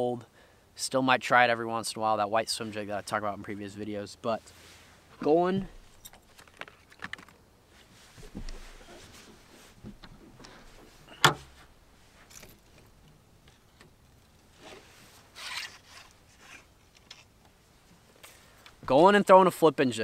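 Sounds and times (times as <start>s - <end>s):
gear rustling and scraping: 4.9s - 18.9s.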